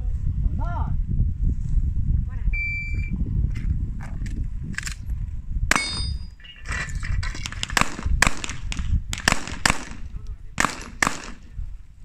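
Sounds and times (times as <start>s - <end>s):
pistol shots: 5.7s - 6.2s, 7.4s - 11.5s
steel targets clanging: 5.7s - 7.8s.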